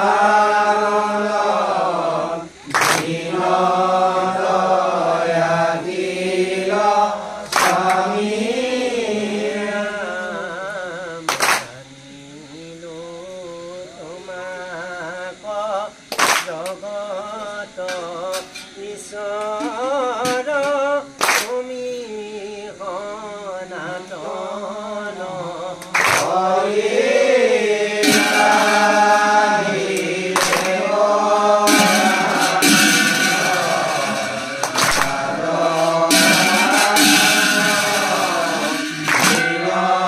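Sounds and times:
group of voices singing: 0.0 - 40.0
sharp strikes: 2.7 - 8.2, 26.0 - 40.0
person singing ornamented melody: 26.4 - 40.0.

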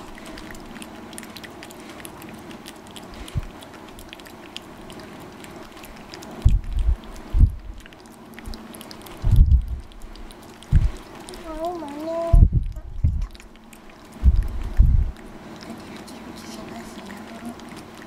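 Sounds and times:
cat licking food: 0.0 - 18.0
low thumps: 6.4 - 7.8, 9.2 - 10.0, 10.7 - 11.0, 12.3 - 13.4, 14.2 - 15.2.

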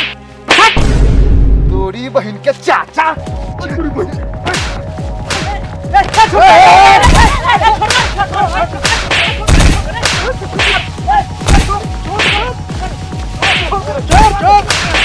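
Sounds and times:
whip-like cracks: 0.0 - 0.8, 4.5 - 6.3, 7.0 - 8.2, 8.8 - 12.4, 13.4 - 15.0.

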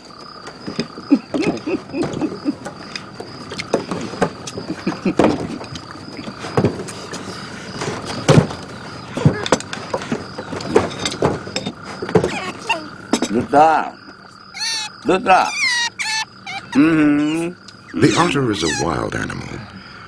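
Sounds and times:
otter squeaks: 0.0 - 19.7
night insects chirring: 0.0 - 20.0
grunts: 16.7 - 18.6.

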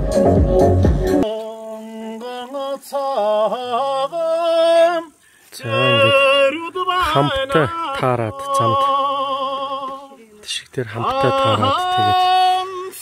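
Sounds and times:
background music with steady beat: 0.0 - 1.4
person singing unaccompanied: 0.0 - 13.0.

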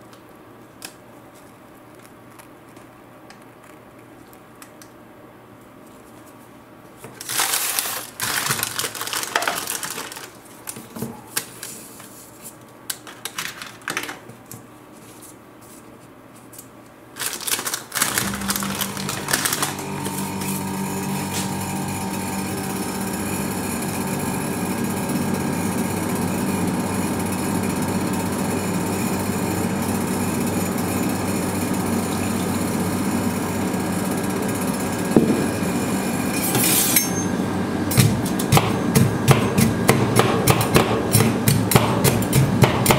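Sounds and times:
machine mechanical hum: 0.0 - 42.9
foil packet crinkling: 7.1 - 12.1, 12.9 - 14.3, 17.1 - 20.3.

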